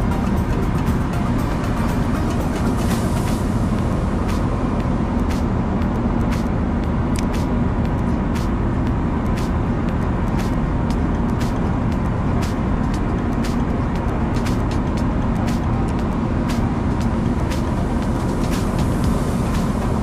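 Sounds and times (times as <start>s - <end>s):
boat engine running: 0.0s - 20.0s
sharp ticks: 0.0s - 20.0s.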